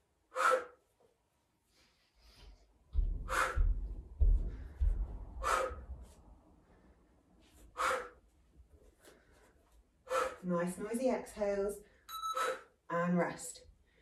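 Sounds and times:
low thuds: 0:02.9 - 0:06.0.

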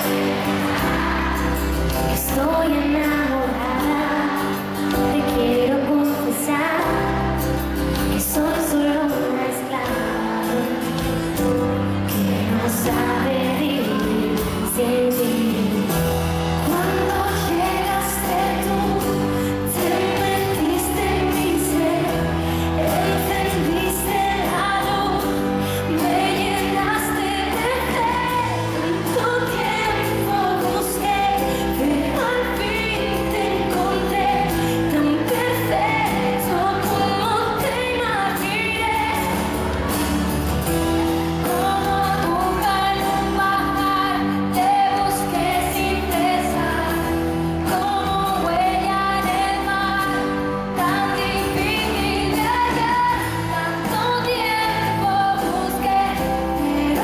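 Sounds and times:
woman singing pop song: 0:00.0 - 0:40.4, 0:41.2 - 0:57.0.

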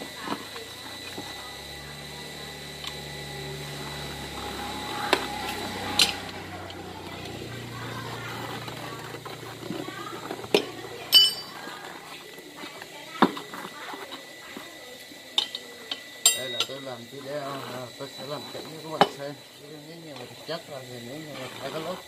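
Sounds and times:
ringing metal clink: 0:11.1 - 0:11.6, 0:16.2 - 0:16.9.

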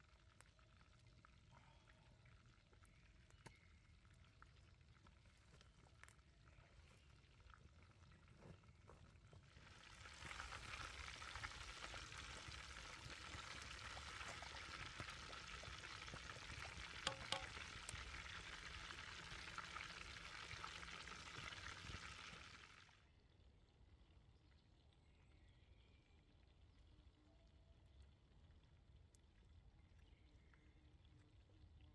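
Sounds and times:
meat deep-frying in hot oil: 0:00.0 - 0:31.9.

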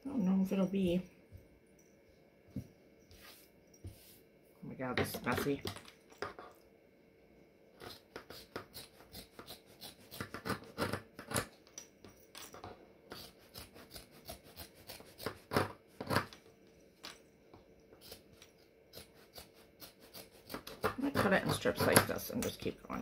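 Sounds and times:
faint steady hum: 0:00.0 - 0:23.0
scissors snipping fabric: 0:13.2 - 0:16.3, 0:18.9 - 0:22.5.

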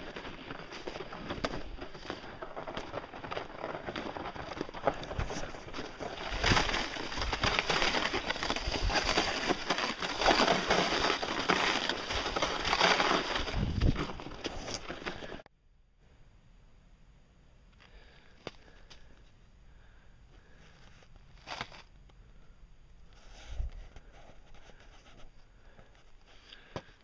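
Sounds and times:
footsteps crunching on snow: 0:00.0 - 0:15.4
sled scraping over snow: 0:00.0 - 0:15.4.

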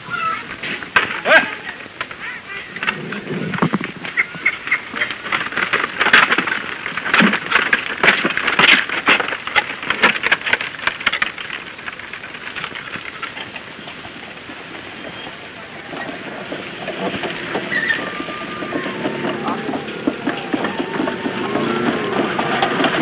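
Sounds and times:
wooden-wheeled cart clattering: 0:00.0 - 0:23.0.

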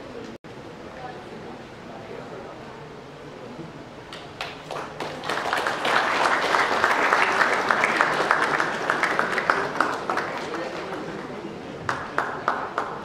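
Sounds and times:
audience applauding: 0:04.1 - 0:13.0.

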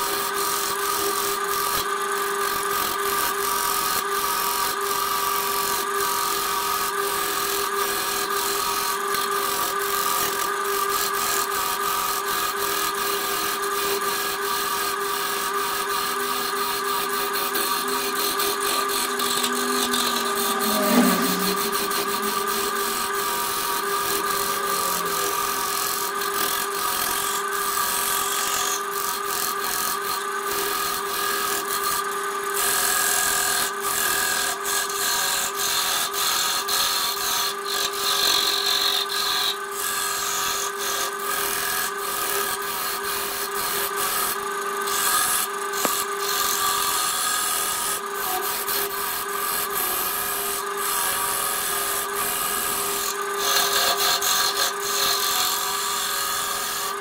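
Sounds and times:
lathe motor hum: 0:05.3 - 0:43.4, 0:44.0 - 0:57.0
tool scraping wood on lathe: 0:11.0 - 0:29.9, 0:32.9 - 0:57.0.

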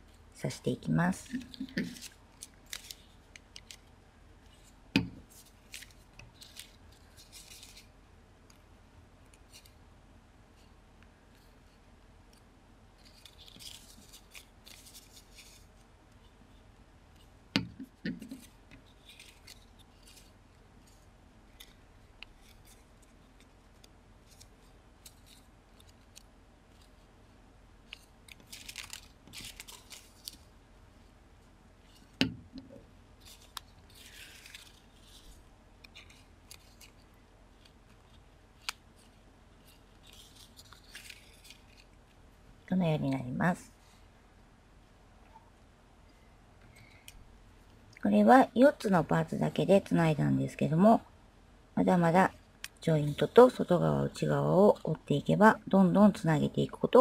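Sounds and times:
paper rustling and crinkling: 0:01.2 - 0:03.9, 0:04.5 - 0:07.9, 0:13.0 - 0:16.3, 0:18.2 - 0:27.0, 0:27.9 - 0:30.5, 0:33.2 - 0:42.0.

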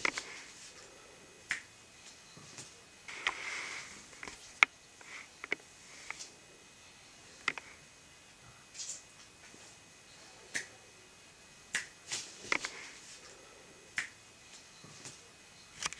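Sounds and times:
finger snaps: 0:01.5 - 0:03.4, 0:10.5 - 0:10.8, 0:11.7 - 0:12.7, 0:13.9 - 0:15.2.

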